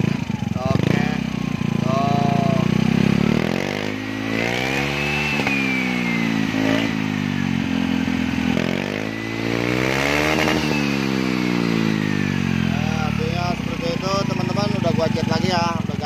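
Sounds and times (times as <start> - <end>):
scooter engine revving: 0.0 - 16.0
thin whine: 3.9 - 14.6.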